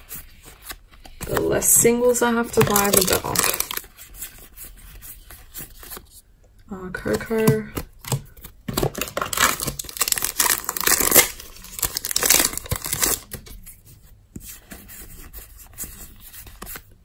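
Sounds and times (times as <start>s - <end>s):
cards rustling: 0.0s - 6.2s, 7.0s - 17.0s
foil wrapper tearing and crinkling: 2.6s - 3.8s, 8.8s - 13.3s.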